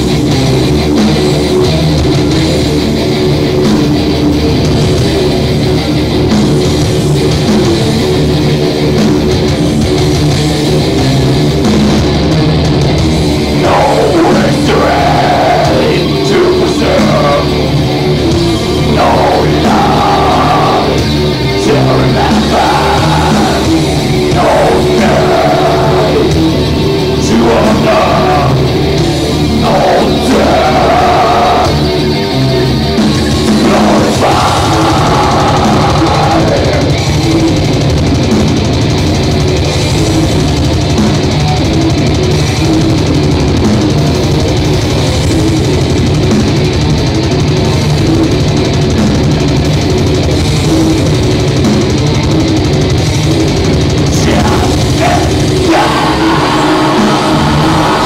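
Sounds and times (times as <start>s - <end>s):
heavy metal band playing: 0.0s - 58.0s
person singing: 13.6s - 17.7s, 18.4s - 28.8s, 29.5s - 32.2s, 33.5s - 37.2s, 54.2s - 58.0s.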